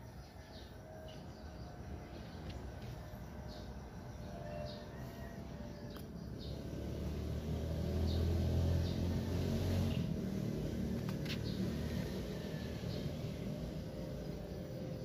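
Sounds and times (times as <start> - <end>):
low engine rumble: 0.0 - 15.0.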